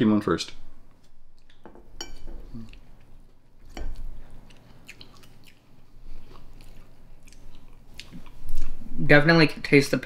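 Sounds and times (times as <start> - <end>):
quiet chewing: 0.9 - 8.9.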